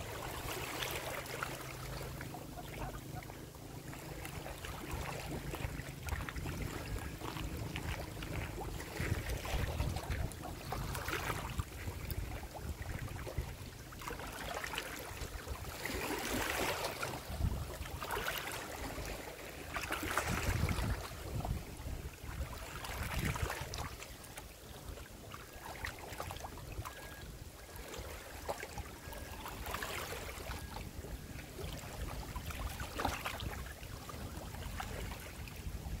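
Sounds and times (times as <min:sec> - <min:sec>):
small waves lapping: 0:00.0 - 0:36.0
wind rumble on microphone: 0:04.0 - 0:14.1, 0:15.0 - 0:24.1, 0:30.0 - 0:36.0.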